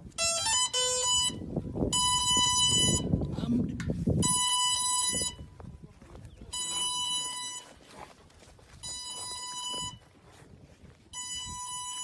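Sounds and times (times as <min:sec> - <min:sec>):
electronic buzzer beeping: 0:11.2 - 0:12.0.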